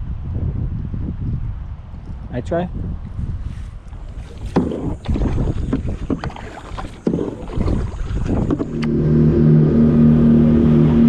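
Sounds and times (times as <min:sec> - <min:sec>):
wind on microphone: 0:00.0 - 0:11.0
paddle strokes splashing: 0:03.9 - 0:09.6
engine drone: 0:07.0 - 0:11.0.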